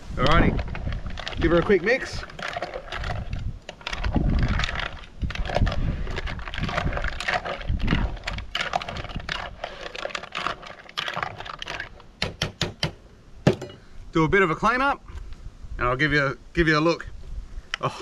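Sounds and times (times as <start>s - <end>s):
spoon stirring in pot: 0.2s - 12.2s.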